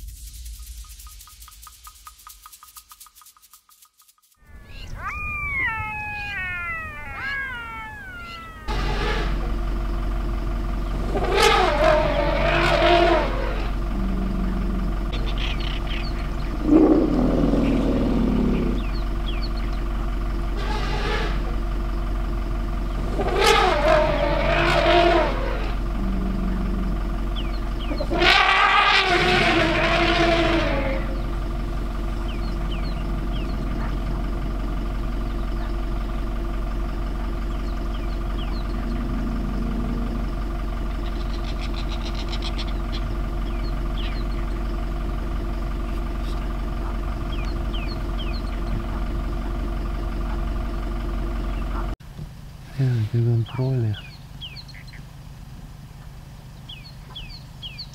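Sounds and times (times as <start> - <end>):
loud pitched sounds: 4.4 - 9.8, 10.9 - 19.2
vehicle engine idling: 4.5 - 57.9.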